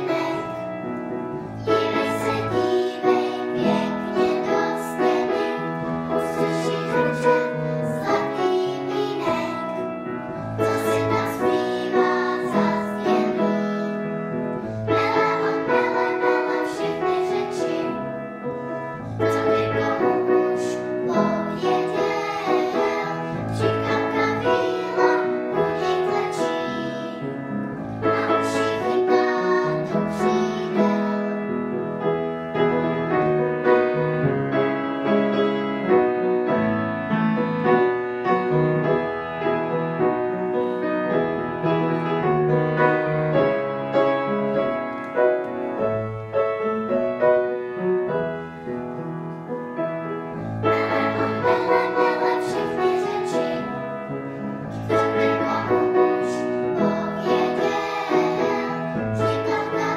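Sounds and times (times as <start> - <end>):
girls singing together: 0.0 - 0.7, 1.6 - 9.9, 10.5 - 14.1, 14.8 - 18.2, 19.0 - 27.3, 28.0 - 31.4, 50.6 - 53.9, 54.7 - 59.9
piano accompaniment: 0.0 - 59.9.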